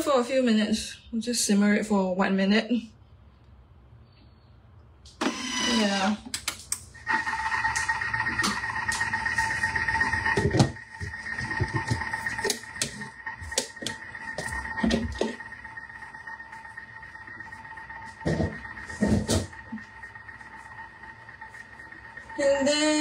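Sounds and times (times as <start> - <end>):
kitchen appliance motor whine: 5.2 - 6.2, 7.0 - 23.0.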